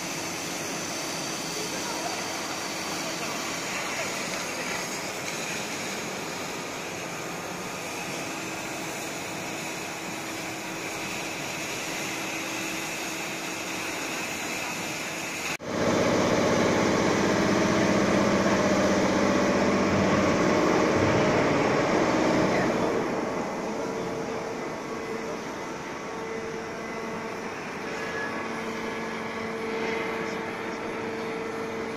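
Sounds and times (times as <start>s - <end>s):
hiss of cutting machine: 0.0s - 31.9s
shop-floor machine noise: 0.0s - 31.9s
machine hum with low tones: 15.6s - 31.9s.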